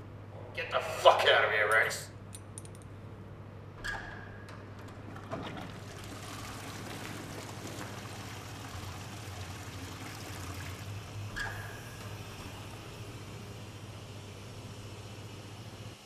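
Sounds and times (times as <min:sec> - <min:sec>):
water pouring and trickling: 0:05.5 - 0:11.3.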